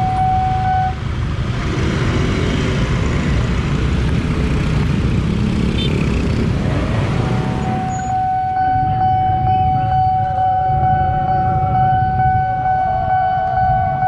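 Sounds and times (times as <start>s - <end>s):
wavering warning tone: 0.0s - 1.0s, 7.2s - 14.0s
motorbike traffic: 0.0s - 14.0s
high electronic warning tone: 7.4s - 14.0s.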